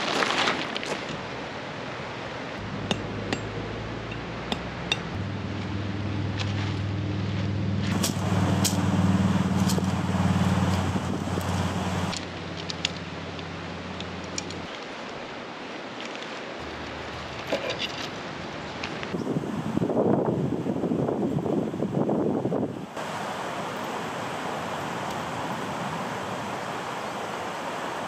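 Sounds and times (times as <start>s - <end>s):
low motor hum: 2.6s - 14.6s.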